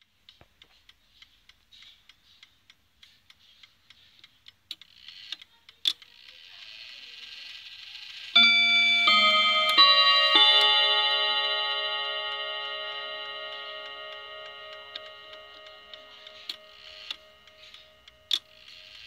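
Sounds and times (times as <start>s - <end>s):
clock ticking: 0.0s - 6.4s, 8.4s - 19.0s
clock chime train whirring: 7.7s - 19.0s
chime rods ringing: 8.4s - 19.0s.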